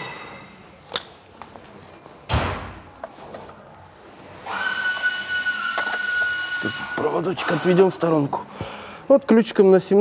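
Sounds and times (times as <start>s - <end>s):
high whistling tone: 4.5s - 7.6s.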